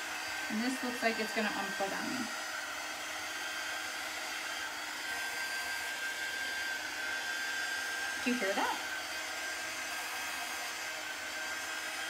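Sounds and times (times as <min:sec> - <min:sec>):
heat tool blowing air: 0:00.0 - 0:12.0.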